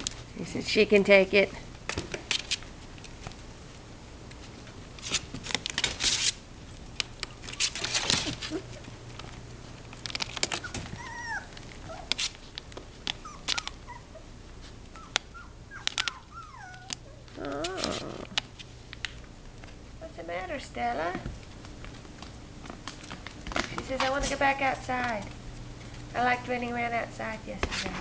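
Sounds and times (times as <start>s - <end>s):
puppy paws scrabbling: 1.0s - 19.8s, 20.5s - 26.9s
puppy whimpers: 10.5s - 12.1s, 13.2s - 14.3s, 14.9s - 18.4s.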